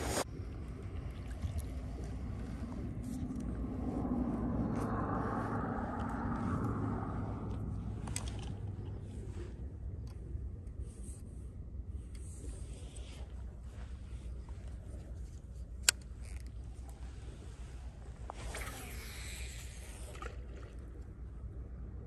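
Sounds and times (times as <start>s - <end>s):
low wind rumble on microphone: 0.0s - 22.0s
fishing reel spool whirring: 2.5s - 9.3s, 18.3s - 20.9s.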